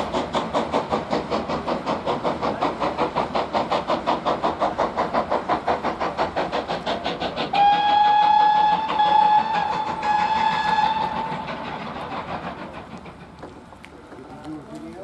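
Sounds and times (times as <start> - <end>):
steam locomotive exhaust beating: 0.0 - 15.0
steam whistle blasts: 7.5 - 11.6.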